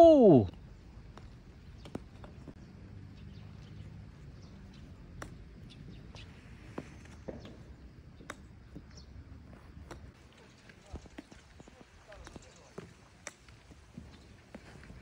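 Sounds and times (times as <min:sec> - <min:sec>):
golf clubs striking balls: 0:01.0 - 0:02.7, 0:03.6 - 0:11.4.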